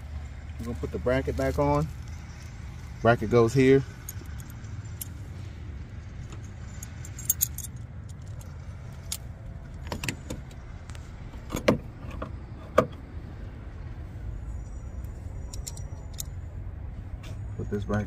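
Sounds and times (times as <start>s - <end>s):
light metallic clinks: 0.6s - 5.2s, 6.2s - 10.6s, 14.5s - 16.6s.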